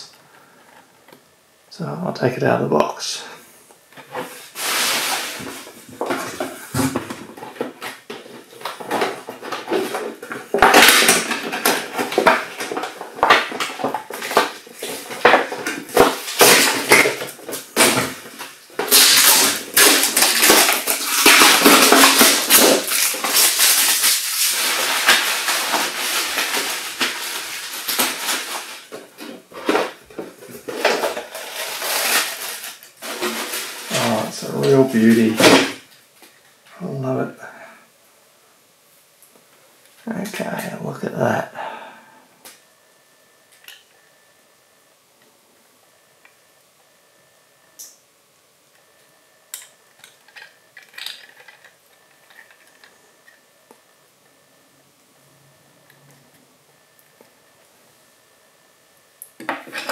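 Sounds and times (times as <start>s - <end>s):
plastic wrap crinkling: 4.0s - 36.4s, 49.6s - 54.0s
plastic case clicks and clatter: 50.0s - 52.9s.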